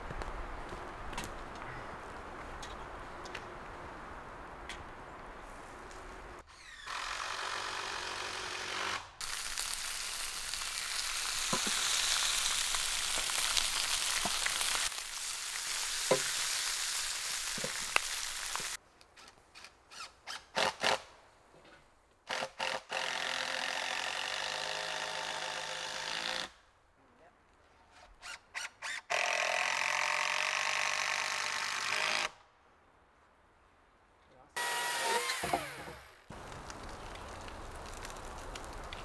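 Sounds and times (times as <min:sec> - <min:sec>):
vegetables sizzling in pan: 0:09.2 - 0:18.8.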